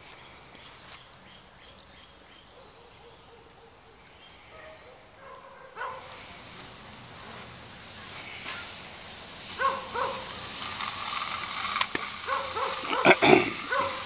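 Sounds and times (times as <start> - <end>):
faint bird chirps: 0.0 - 5.0
dog bark: 2.5 - 6.2, 9.6 - 10.3, 12.3 - 14.0.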